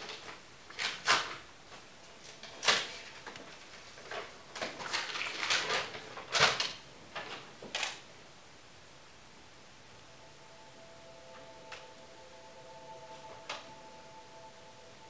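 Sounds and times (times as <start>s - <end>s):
paper rustling: 0.0s - 8.0s.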